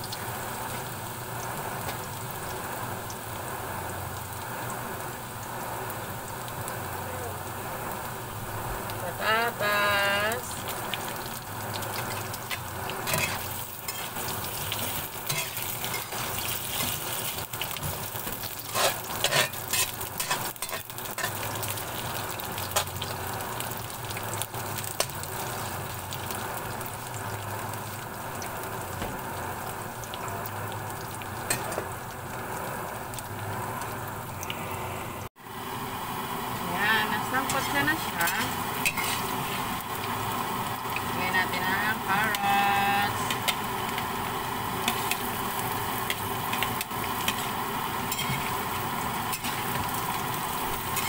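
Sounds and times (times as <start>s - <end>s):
potatoes sizzling in oil: 0.0s - 51.0s
metal spatula scraping a pan: 12.5s - 17.3s, 18.4s - 21.5s, 37.4s - 39.6s, 48.1s - 48.5s.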